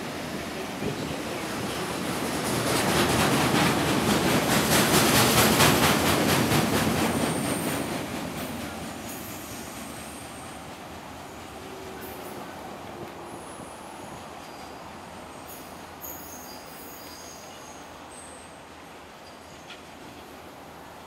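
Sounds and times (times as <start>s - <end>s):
train wheels clattering on rails: 0.3s - 13.2s.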